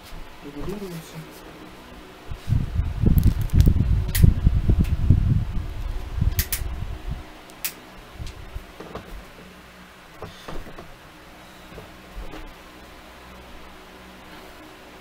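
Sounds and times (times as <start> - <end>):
fan airflow buffeting microphone: 0.0 - 15.0
plastic fan head clicks: 6.3 - 6.7.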